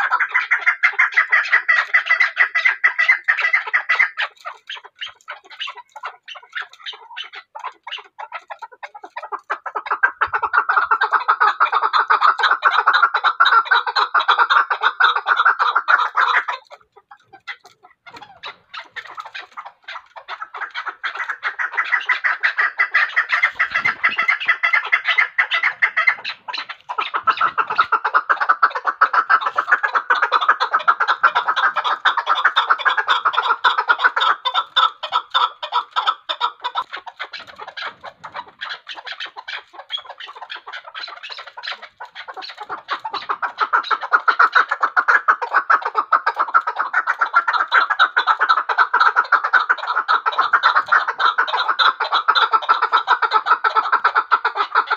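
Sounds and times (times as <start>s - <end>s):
partridge chattering clucks: 0.0s - 54.9s.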